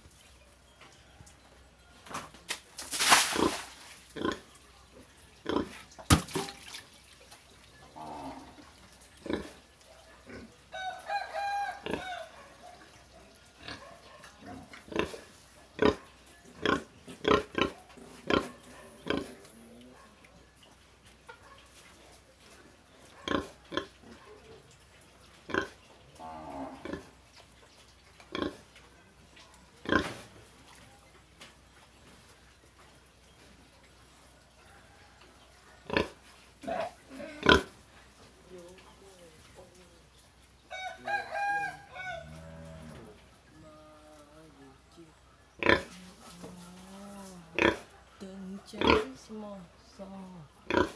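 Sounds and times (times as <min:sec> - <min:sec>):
pig grunting: 0:35.8 - 0:37.8, 0:50.6 - 0:50.9.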